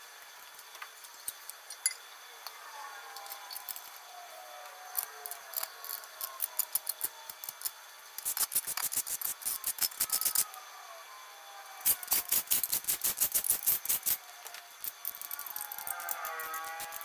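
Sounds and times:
ratchet clicking rapidly: 5.0s - 10.6s, 11.8s - 17.0s.

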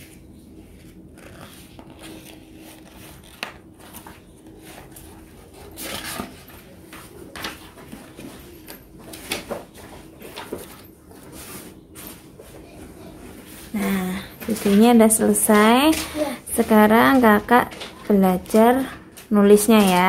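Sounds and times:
paper rustling and scraping: 0.0s - 13.8s.

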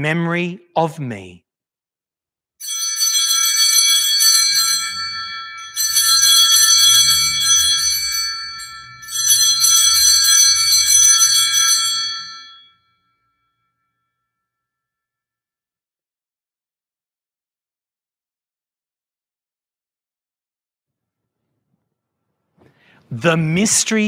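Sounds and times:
altar bells jangling: 2.6s - 12.8s.

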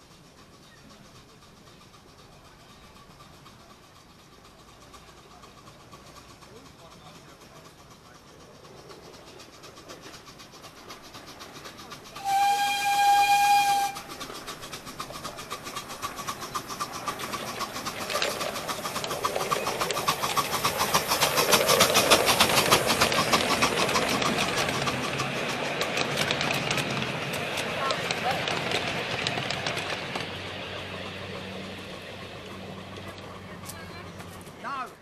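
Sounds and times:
train clattering on track: 0.0s - 35.0s
steam locomotive whistle: 12.2s - 14.1s.

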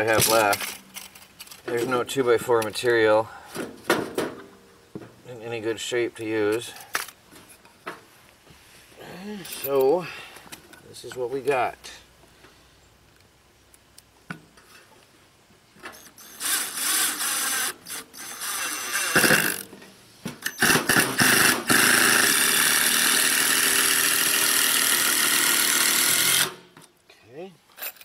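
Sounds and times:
cordless drill driving screws: 15.9s - 19.7s, 20.4s - 26.6s.

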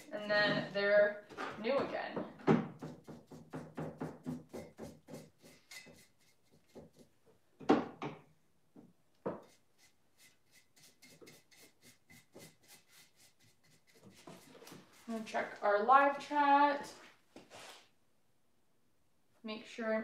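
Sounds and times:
paintbrush scratching and dabbing: 2.7s - 7.2s, 9.3s - 15.7s.

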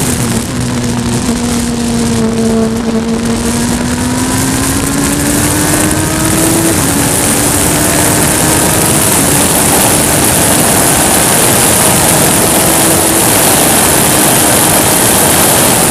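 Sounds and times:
race car engine accelerating: 0.0s - 15.9s
rushing wind noise: 0.0s - 15.9s.

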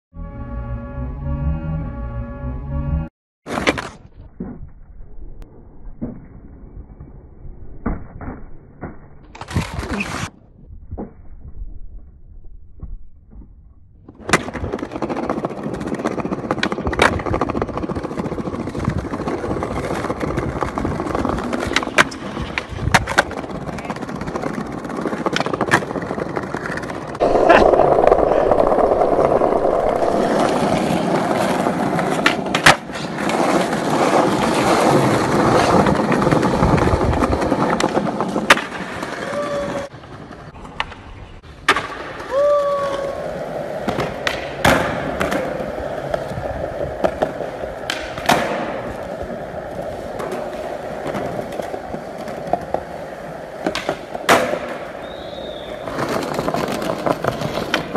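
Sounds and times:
skateboard wheels rolling on concrete: 3.4s - 57.9s
skateboard clacks: 14.2s - 57.9s.

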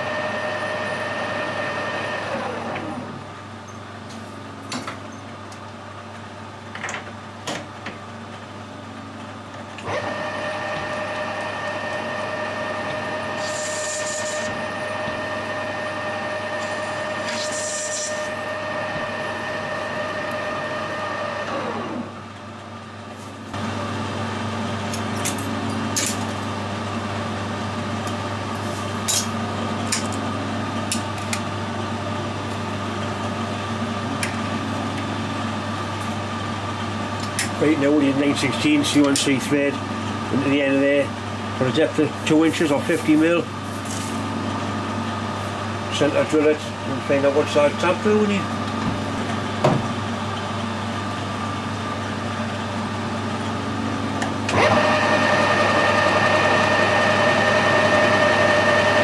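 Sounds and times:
lathe drive whine: 0.0s - 3.3s, 9.8s - 22.8s, 50.1s - 59.0s
motor hum: 9.8s - 22.7s.

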